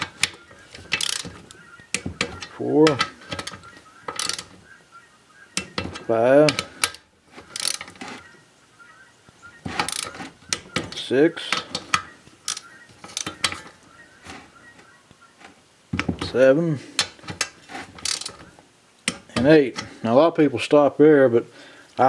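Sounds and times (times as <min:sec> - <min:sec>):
torque wrench clicking: 0:00.2 - 0:02.0, 0:04.1 - 0:04.5, 0:07.6 - 0:07.9, 0:18.0 - 0:18.4.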